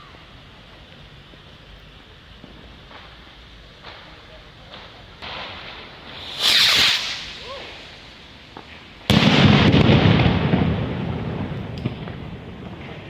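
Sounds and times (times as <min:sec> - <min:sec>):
firework hiss: 0:00.0 - 0:13.0
firework bang with rumbling echo: 0:03.8 - 0:13.0.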